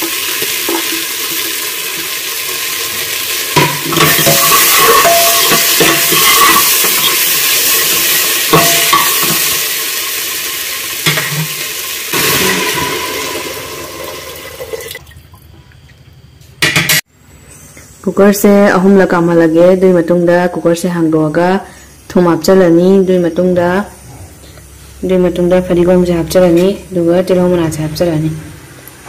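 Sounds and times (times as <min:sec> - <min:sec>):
vegetables sizzling in hot oil: 0:00.0 - 0:14.8
water pouring into pot: 0:00.0 - 0:15.3.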